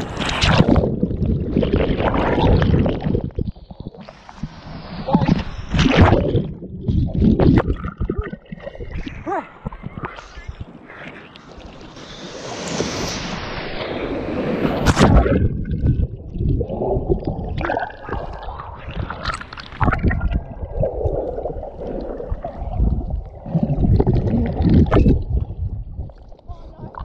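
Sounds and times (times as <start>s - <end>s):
muffled underwater gurgling: 0.4s - 4.2s, 4.9s - 11.0s, 14.9s - 27.0s
surf splashing: 9.0s - 15.9s
wave wash rushing: 10.2s - 15.5s.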